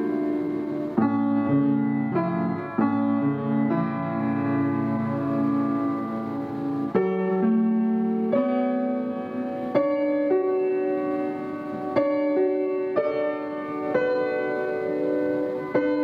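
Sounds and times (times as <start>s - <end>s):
upright piano played slowly: 0.0s - 16.0s.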